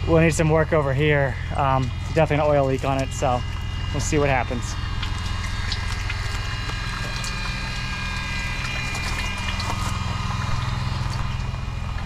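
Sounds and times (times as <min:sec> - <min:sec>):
electric pump pulsing: 0:00.0 - 0:12.0.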